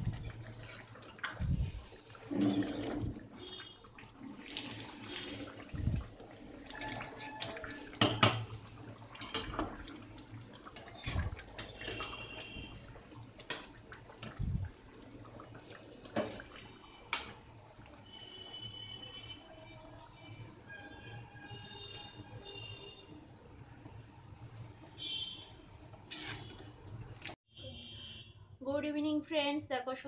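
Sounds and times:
gravy sloshing: 0:00.0 - 0:18.5
metal spatula scraping pan: 0:01.6 - 0:03.2, 0:10.8 - 0:12.3, 0:26.1 - 0:26.6.

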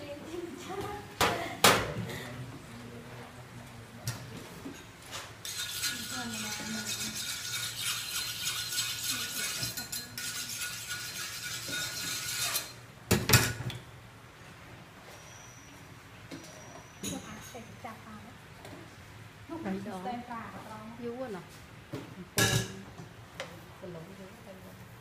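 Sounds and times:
knife sharpening scrape: 0:05.4 - 0:12.8.

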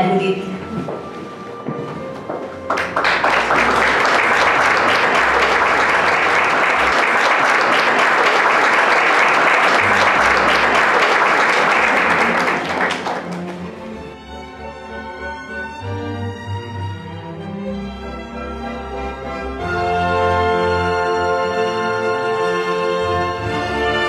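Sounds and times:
instrumental music: 0:00.0 - 0:24.0
audience applauding: 0:02.5 - 0:14.0.

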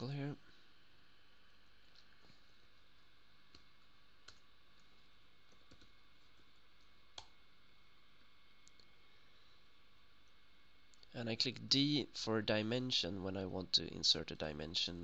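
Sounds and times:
computer mouse and keyboard clicks: 0:03.5 - 0:07.3.

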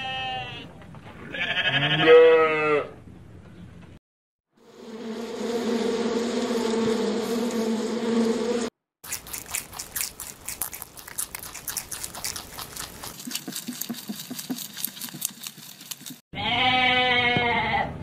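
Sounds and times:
sheep bleat: 0:00.0 - 0:00.7, 0:01.3 - 0:03.0, 0:16.4 - 0:18.0
bees buzzing: 0:04.6 - 0:08.7
rabbits chewing hay: 0:09.1 - 0:16.3.

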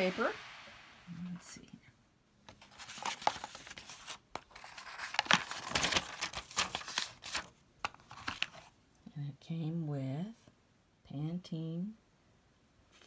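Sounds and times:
wrapping paper rustling: 0:02.6 - 0:08.7.

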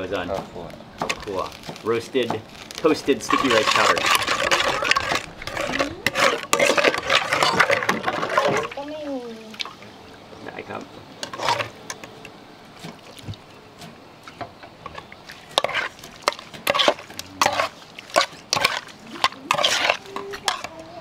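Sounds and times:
metal spoon scraping a pot: 0:03.2 - 0:08.7, 0:11.2 - 0:11.8, 0:14.9 - 0:21.0.

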